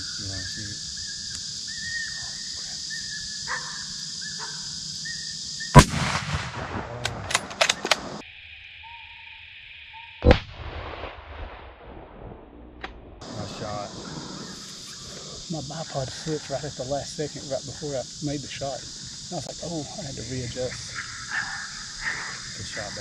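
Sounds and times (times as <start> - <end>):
high insect drone: 0.0 - 10.3, 13.2 - 23.0
rifle shot: 5.8 - 8.2, 10.2 - 13.0.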